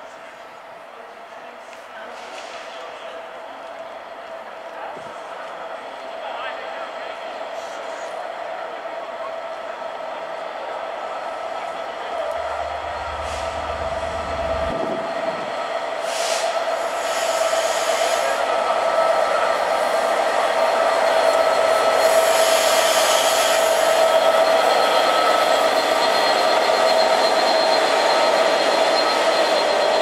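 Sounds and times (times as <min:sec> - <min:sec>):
passenger train rumbling: 0:00.0 - 0:30.0
train hiss: 0:06.5 - 0:08.3, 0:11.3 - 0:30.0
high whine: 0:12.1 - 0:15.8.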